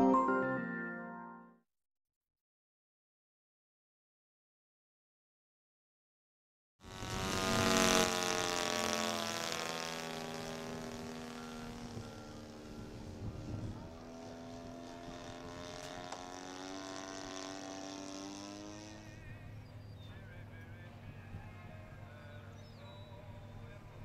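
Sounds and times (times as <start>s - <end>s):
model airplane motor and propeller: 6.8s - 24.0s.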